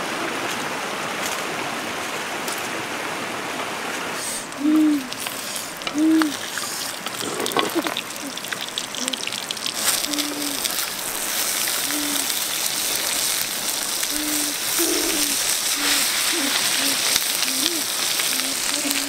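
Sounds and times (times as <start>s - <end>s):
fish sizzling over fire: 4.2s - 19.0s
wood fire crackling: 4.2s - 19.0s
bird hooting: 4.6s - 5.2s, 5.9s - 6.4s, 11.9s - 12.3s, 14.1s - 19.0s.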